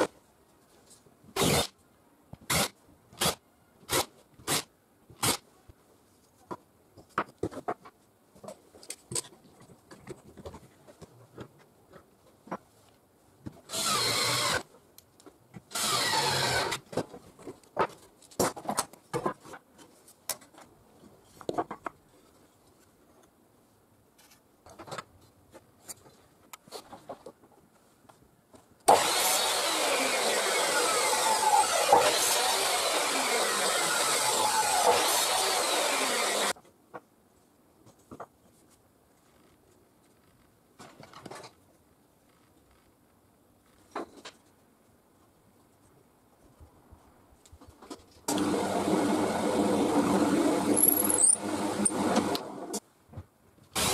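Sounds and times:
mitre saw cutting wood: 13.7 - 14.6, 15.7 - 16.8, 28.9 - 36.5, 48.3 - 52.6
power tool bursts: 15.8 - 16.8, 28.9 - 36.5, 48.3 - 52.5.

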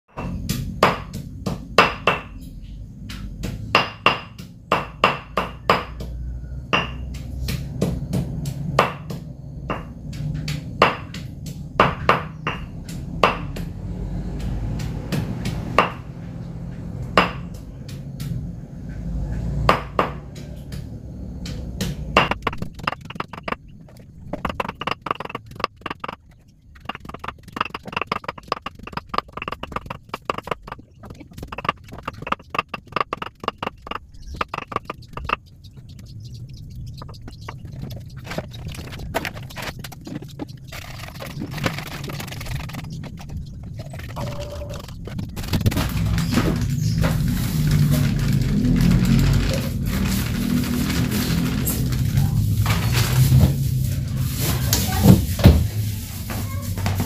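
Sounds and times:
steady low rumble: 0.1 - 57.0
food clicking in dishes: 22.2 - 23.7, 24.3 - 45.8.

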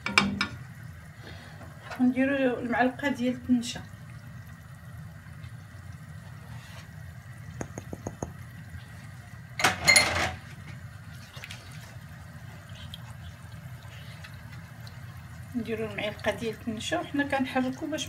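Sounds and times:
low steady hum: 0.0 - 18.0
light taps: 7.6 - 8.4.

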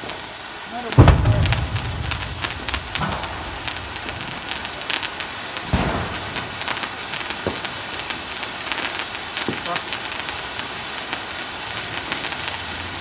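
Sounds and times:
ground firework hissing and crackling: 0.0 - 1.0, 4.4 - 13.0
loud thump: 1.0 - 6.6.

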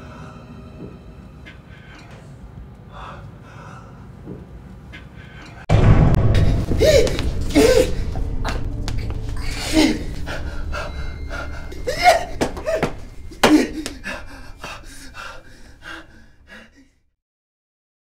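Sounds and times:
low drone: 5.7 - 16.5
man crying out in fright: 6.7 - 8.2, 9.4 - 15.1
panting breaths: 10.2 - 16.9.

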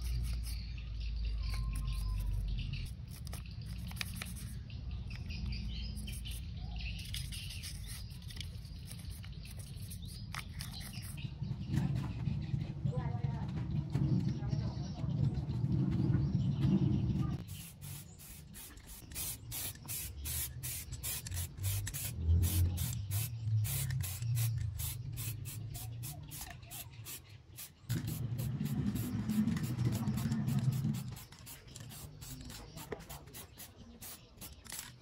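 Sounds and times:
spray can hissing in bursts: 17.4 - 34.7.

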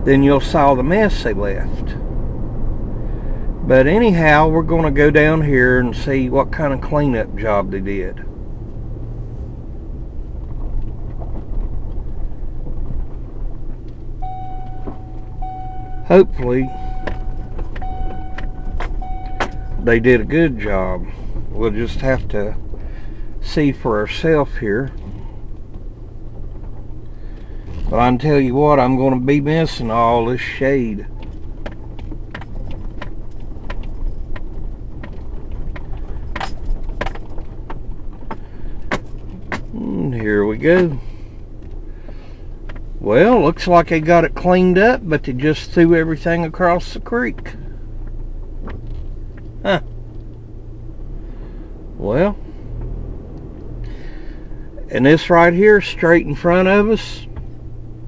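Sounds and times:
truck engine and tyre rumble: 0.0 - 58.0
clicks and rattles in cab: 10.4 - 29.0, 31.0 - 50.6, 54.8 - 58.0.

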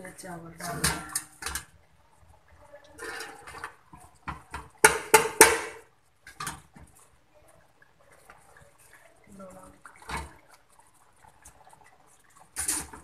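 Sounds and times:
metal pot and colander clattering: 0.5 - 1.7, 2.9 - 7.0, 12.4 - 13.0.

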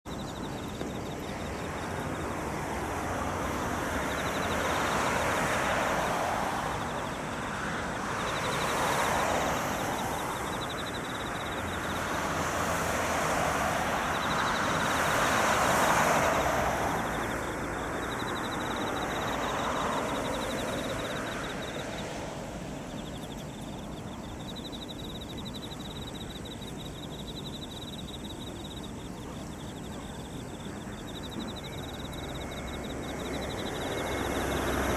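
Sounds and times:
expressway traffic passing: 0.1 - 34.9
insects trilling: 0.1 - 34.9.

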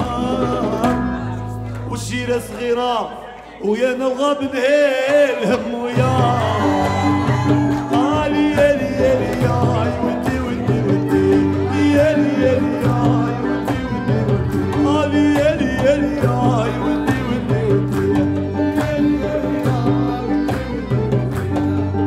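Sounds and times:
live band with accordion and guitar: 0.0 - 2.4, 5.1 - 22.0
man singing: 0.0 - 22.0.

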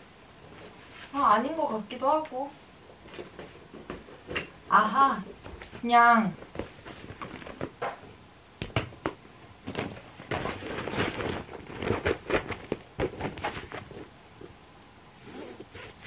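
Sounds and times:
fabric bag crinkling: 10.2 - 14.1.

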